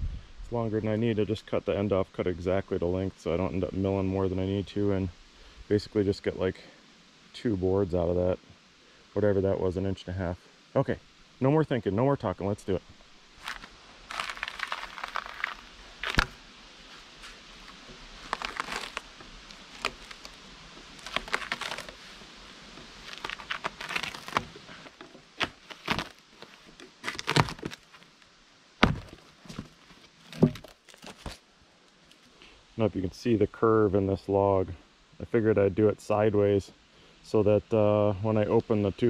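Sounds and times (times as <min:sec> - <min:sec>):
bark cracking: 0:13.4 - 0:16.4, 0:17.6 - 0:22.0, 0:23.0 - 0:28.2, 0:28.8 - 0:31.4
knife scraping bark off log: 0:13.4 - 0:16.4, 0:17.2 - 0:20.4, 0:21.0 - 0:22.1, 0:23.0 - 0:28.1, 0:28.8 - 0:31.4.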